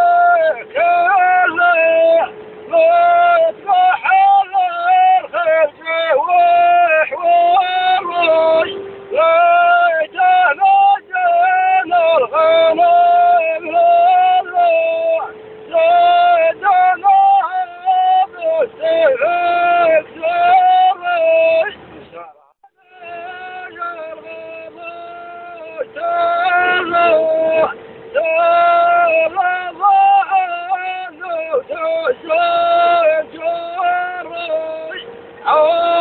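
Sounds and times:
high voice singing: 22.8s - 36.0s.

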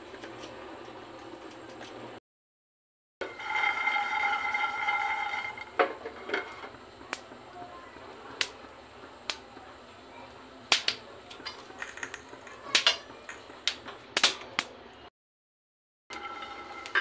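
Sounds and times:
steady ringing tone: 3.2s - 5.8s.

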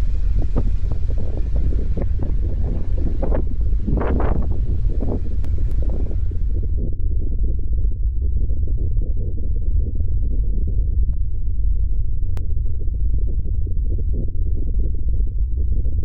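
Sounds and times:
muffled low rumble: 0.0s - 16.0s.

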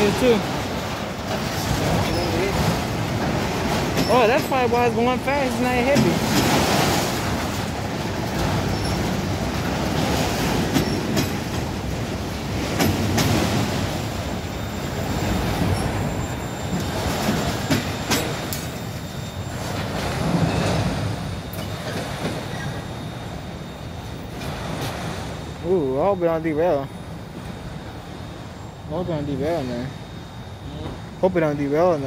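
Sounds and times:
steel wheels rumbling on rail: 0.0s - 32.0s.

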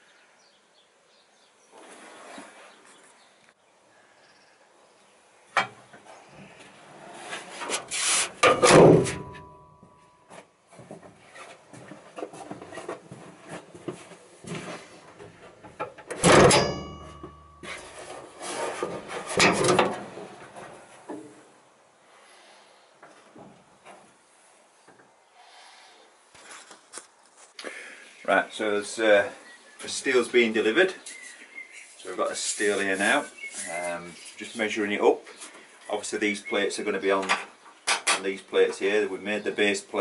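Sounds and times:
rubbing and scraping: 1.7s - 3.2s, 6.0s - 9.3s, 10.7s - 16.0s, 17.1s - 21.1s, 31.8s - 34.7s
loud metal clunks: 8.4s - 9.9s, 15.9s - 17.6s.

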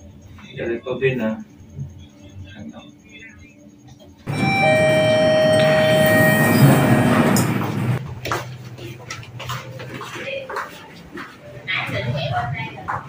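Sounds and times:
chime ringing: 4.3s - 8.0s.

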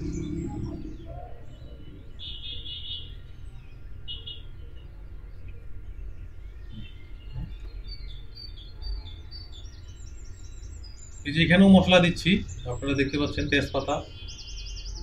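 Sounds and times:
steady low rumble: 0.0s - 2.2s
small birds chirping: 0.0s - 15.0s.

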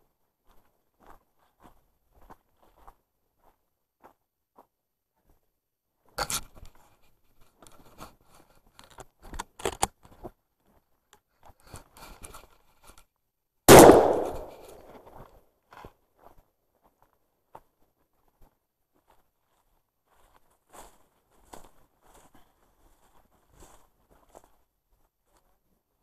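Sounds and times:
loud gunshot with echo: 13.7s - 14.8s.

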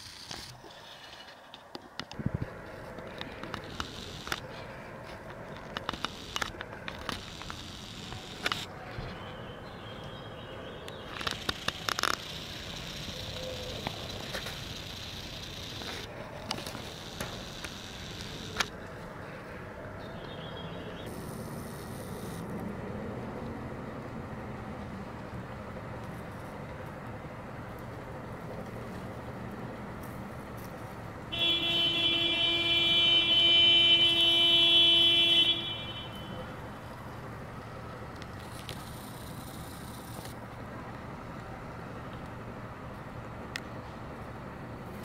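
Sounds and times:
sharp clicks and crackles: 0.0s - 8.7s, 10.9s - 18.8s, 38.1s - 41.5s
outdoor background rumble: 0.0s - 45.0s.

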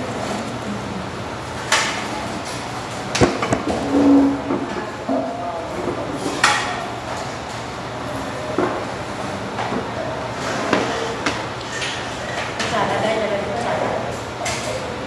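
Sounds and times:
restaurant background hum: 0.0s - 15.0s
sharp knocks: 3.2s - 3.9s.

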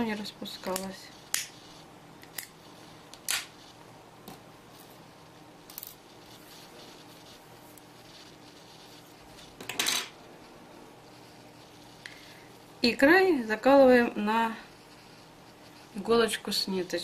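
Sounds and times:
lighter clicking: 0.7s - 1.6s.

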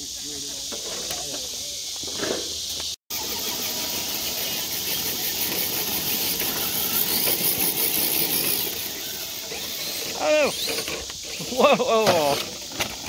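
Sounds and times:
electric toy car motor whining: 3.2s - 13.0s.

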